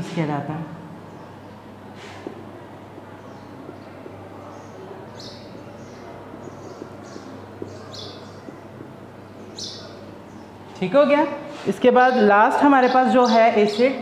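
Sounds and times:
marker writing on whiteboard: 6.6 - 9.0.

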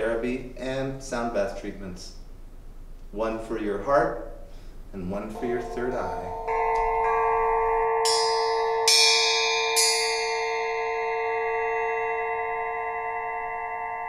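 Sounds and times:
quartz crystal struck ringing: 5.3 - 14.0.

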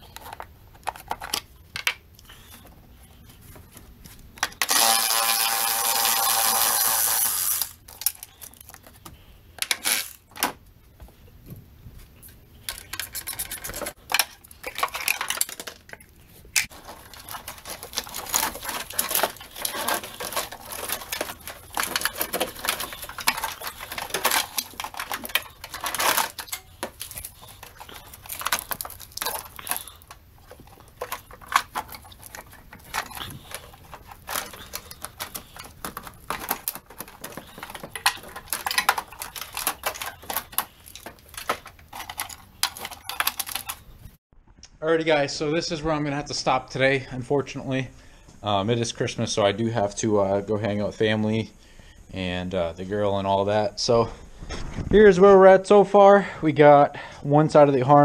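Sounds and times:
car parts clicking and rattling: 0.0 - 2.8, 12.2 - 44.2.

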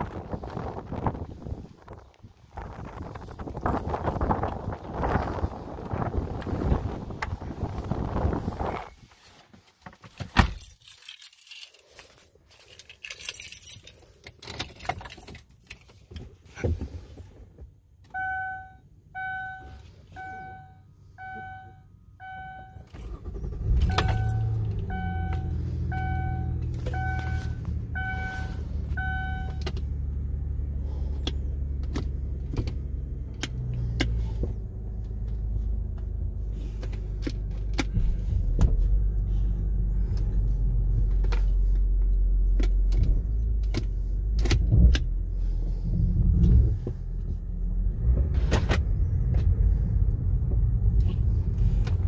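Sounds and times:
keys jangling: 10.4 - 16.1
car engine idling: 18.1 - 48.0
warning chime beeping: 18.2 - 22.8, 23.8 - 29.6.

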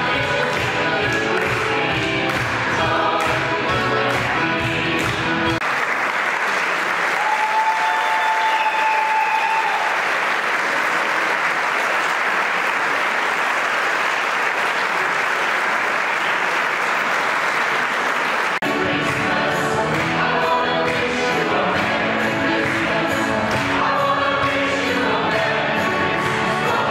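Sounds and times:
music: 0.0 - 5.6, 18.6 - 26.9
audience applauding: 4.0 - 24.7.

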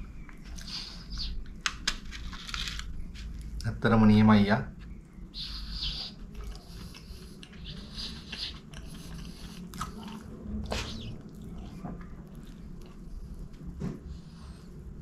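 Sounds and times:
chewing with wet mouth noises: 4.8 - 14.2.

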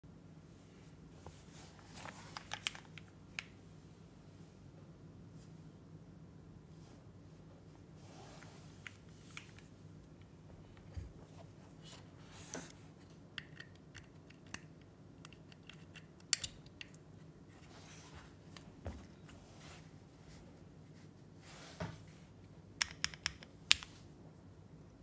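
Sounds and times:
rustling on desk mat: 0.5 - 2.9, 7.8 - 9.8, 10.6 - 13.0, 17.4 - 22.4
keyboard handling clicks and knocks: 22.8 - 23.9.

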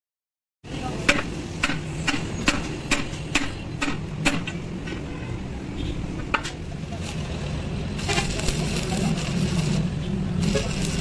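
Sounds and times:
hammer striking steel: 1.0 - 4.6.

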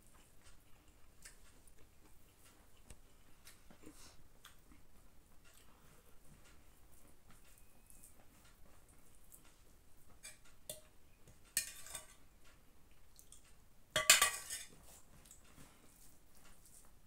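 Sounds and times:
steel ladle clinking against pot: 11.5 - 12.2, 14.0 - 14.7.

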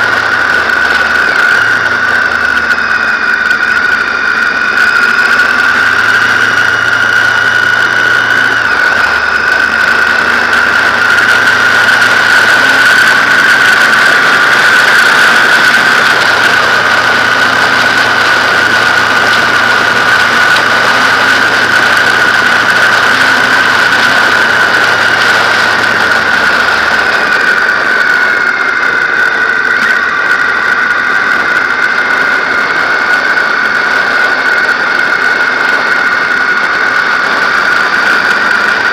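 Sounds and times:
loud high whistle: 0.0 - 38.9
motorcycle engine drone: 0.0 - 38.9
wind noise: 0.0 - 38.9.

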